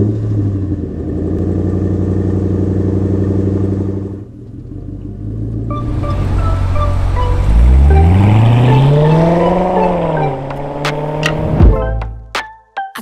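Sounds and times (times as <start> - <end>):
vehicle engine running: 0.0 - 12.0
music: 5.7 - 13.0.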